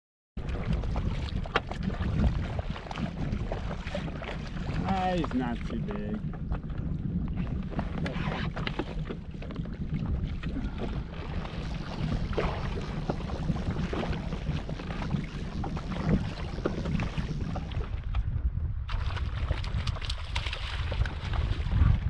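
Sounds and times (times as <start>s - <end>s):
water lapping against boat: 0.4s - 18.3s, 18.9s - 22.0s
wind rumbling on microphone: 0.4s - 22.0s
small knocks and splashes: 18.9s - 21.6s.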